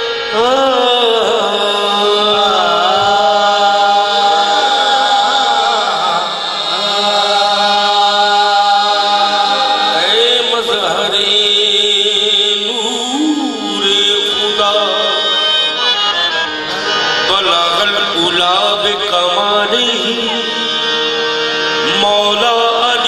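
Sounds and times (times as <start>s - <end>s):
harmonium chords: 0.0s - 23.0s
person singing long melodic phrases: 0.0s - 23.0s.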